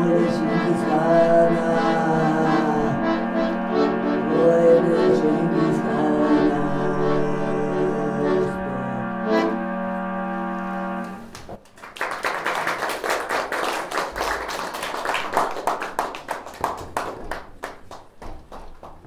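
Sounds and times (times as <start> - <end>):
held music chord: 0.0 - 11.3
audience applause: 11.2 - 19.0.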